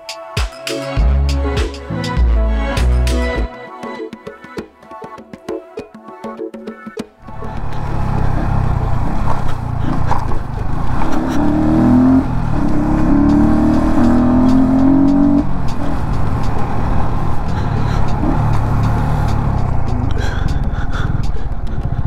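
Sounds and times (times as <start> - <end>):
motorcycle engine accelerating: 7.2 - 22.0
wind and road noise: 7.2 - 22.0.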